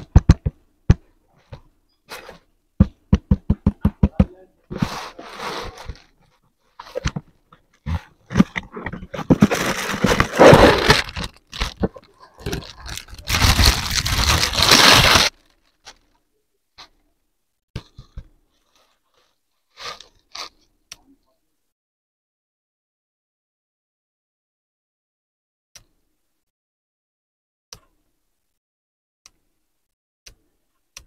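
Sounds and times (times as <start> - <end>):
cardboard box scraping and rustling: 4.7 - 6.1, 7.9 - 11.3
plastic bag crinkling: 9.2 - 16.2.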